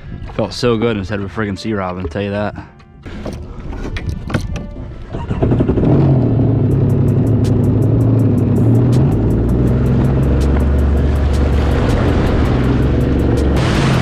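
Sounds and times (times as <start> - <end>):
personal watercraft engine running: 3.0 - 14.0
music with ticking beat: 6.7 - 13.6.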